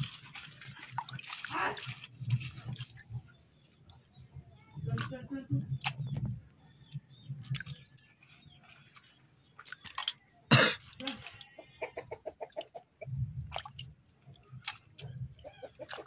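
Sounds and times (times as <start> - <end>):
chicken clucking and squawking: 11.5 - 13.1, 15.4 - 16.0.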